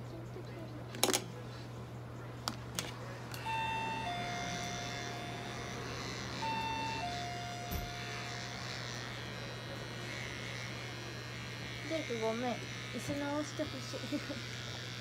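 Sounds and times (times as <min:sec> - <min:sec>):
electric hair clipper buzzing: 0:03.3 - 0:15.0.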